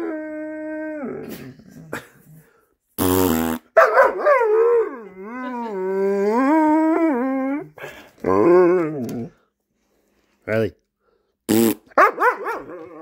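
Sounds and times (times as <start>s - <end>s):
buzzy fart noise: 3.0s - 3.7s, 11.5s - 12.0s
dog howling: 4.2s - 9.4s.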